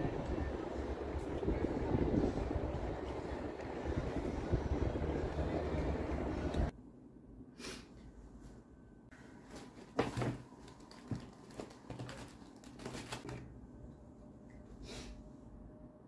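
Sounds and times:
wind: 0.0s - 6.7s
traffic noise: 0.0s - 6.8s
cloth bag rustling: 9.4s - 13.4s.

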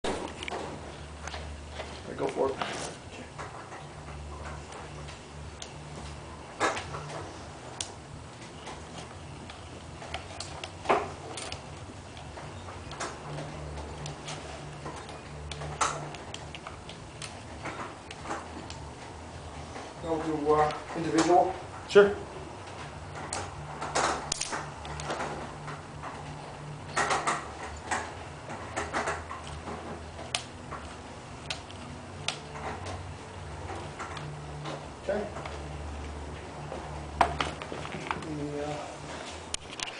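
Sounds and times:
sharp mechanical clicks: 23.3s - 25.7s.

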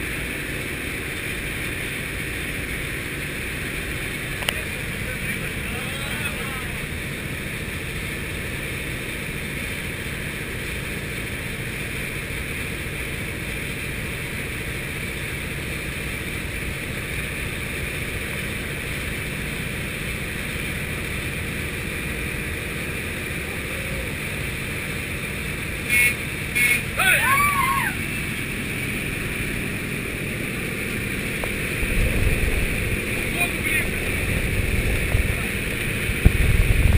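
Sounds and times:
propeller plane engine drone: 0.0s - 36.9s
rushing air: 27.4s - 36.9s.

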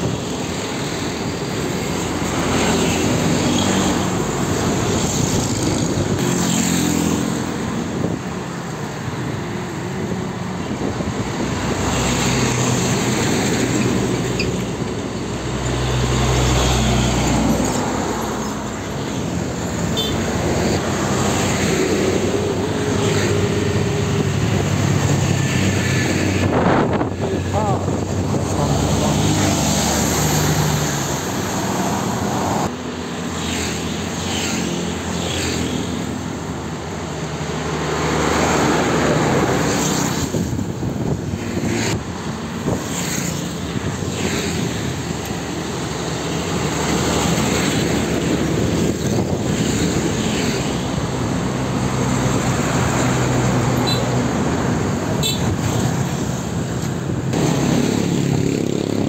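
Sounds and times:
buses and trucks passing: 0.0s - 59.0s.

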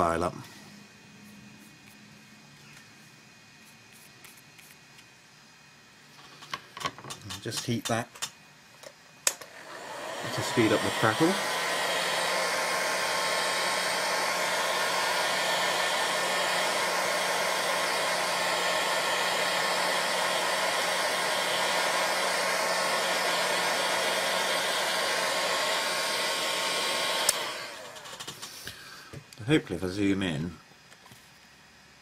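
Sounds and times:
heat tool blowing air: 9.1s - 30.1s.

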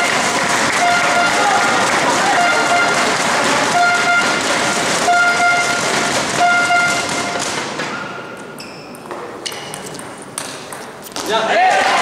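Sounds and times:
spectators cheering and clapping: 0.0s - 7.7s, 11.3s - 12.0s
horn blasts: 0.7s - 7.5s
table tennis ball clicks: 2.7s - 11.2s.

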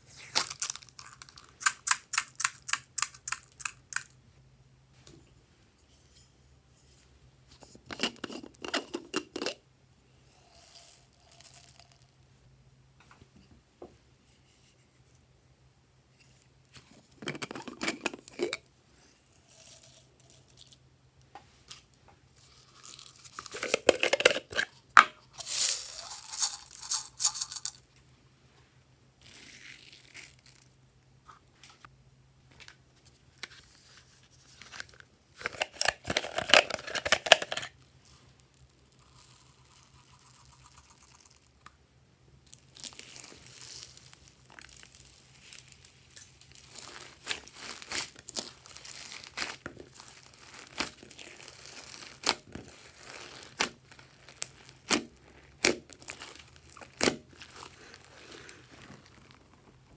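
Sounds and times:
hands rustling and crinkling: 42.5s - 59.9s.

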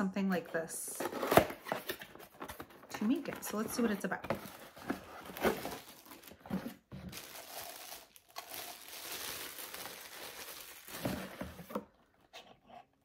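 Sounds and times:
plastic bag crinkling: 3.5s - 11.8s.

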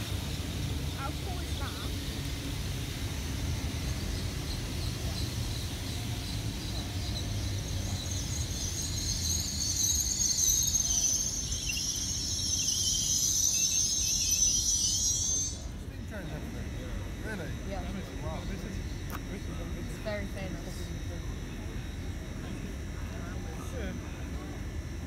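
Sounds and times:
train rumbling: 0.0s - 16.2s
high-pitched metallic squeal: 7.0s - 15.7s.

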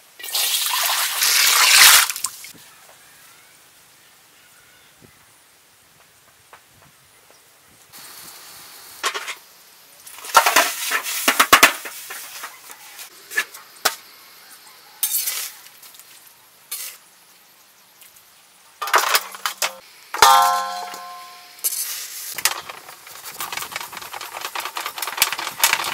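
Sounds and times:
metal cookware clattering and scraping: 10.3s - 12.5s, 18.8s - 25.9s.

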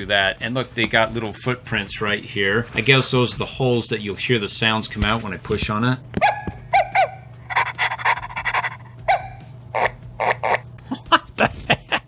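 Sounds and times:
toy puppy barks and yips: 6.2s - 9.4s.

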